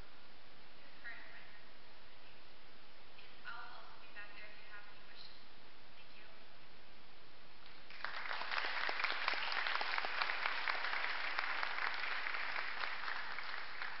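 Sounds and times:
congregation applauding: 7.6s - 14.0s.

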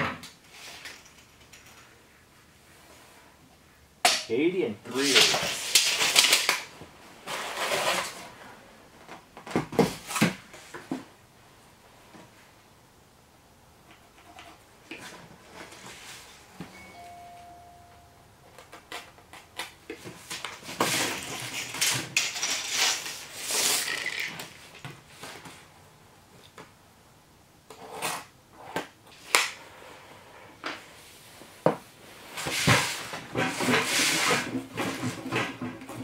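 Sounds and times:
tape measure blade retracting: 21.7s - 24.6s.

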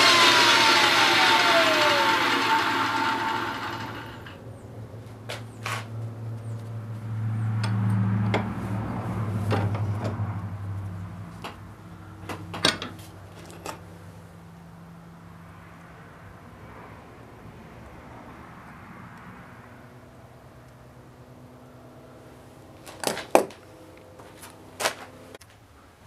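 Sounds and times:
loud whirring hiss: 0.0s - 4.4s
low hum: 0.0s - 4.4s.

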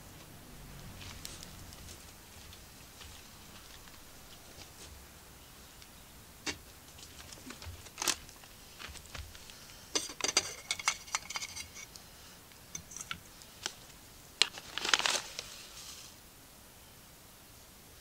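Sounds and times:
kettle lid clinking and rattling: 10.0s - 11.8s.

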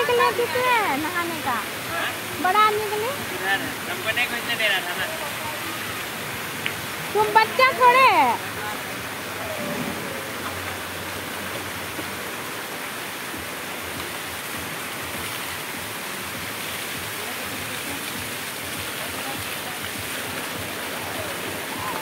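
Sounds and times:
water splashing into pool: 7.9s - 22.0s.

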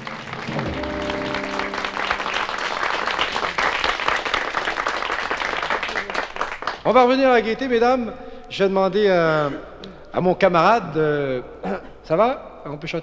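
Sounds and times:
studio audience applauding: 0.0s - 7.0s
piano chord: 0.4s - 3.5s.

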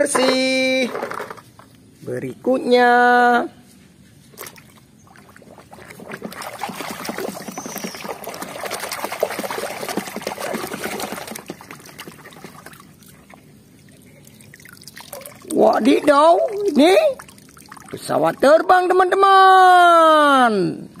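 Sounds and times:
water sloshing and splashing: 4.3s - 18.4s.

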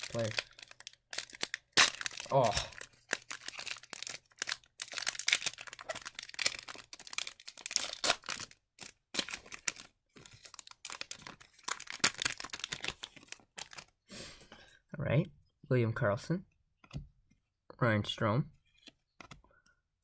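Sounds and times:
cards and foil wrapper rustling: 0.0s - 14.0s.

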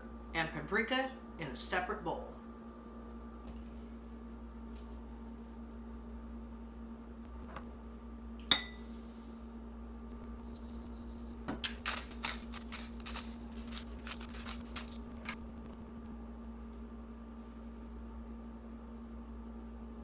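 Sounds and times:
glass clink: 8.4s - 8.8s
seasoning crackling over bowl: 10.3s - 15.4s.

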